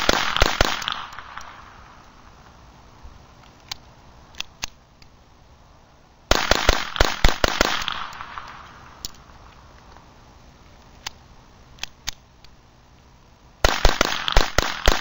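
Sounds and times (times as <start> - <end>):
pistol shots with echo: 0.0 - 1.6, 6.3 - 8.6, 13.6 - 15.0
gun handling clicks: 3.4 - 5.2, 6.6 - 10.1, 10.7 - 12.6.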